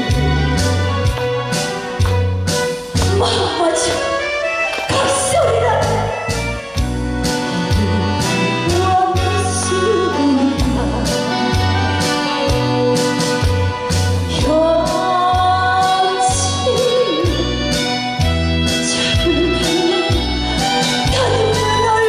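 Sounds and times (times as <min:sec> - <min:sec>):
backing track with beat and bass: 0:00.0 - 0:15.9
woman singing into a microphone: 0:07.4 - 0:12.3, 0:14.3 - 0:17.9, 0:18.8 - 0:20.3, 0:21.1 - 0:22.0.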